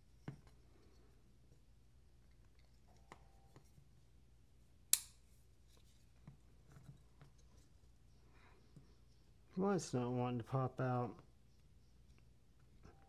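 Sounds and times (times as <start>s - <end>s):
sharp metallic click: 4.9s - 5.2s.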